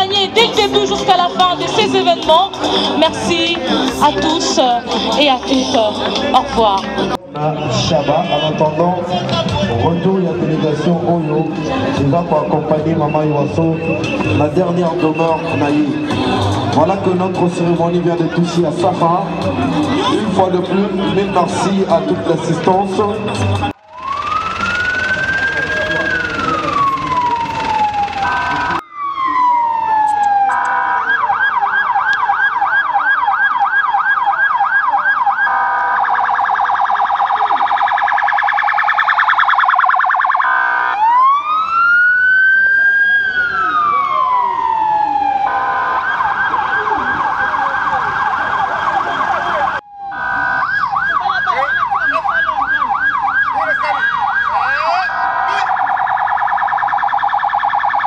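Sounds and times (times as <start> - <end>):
electronic siren wailing and yelping: 23.8 - 58.0.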